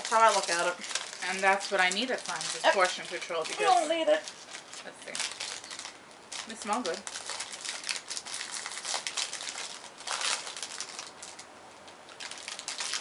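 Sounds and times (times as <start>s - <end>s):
plastic wrapper crinkling: 0.0s - 13.0s.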